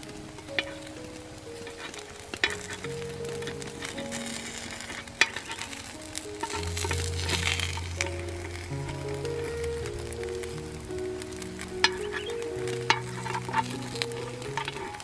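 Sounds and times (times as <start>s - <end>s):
background music: 0.0s - 15.0s
batter sizzling in a pan: 0.0s - 15.0s.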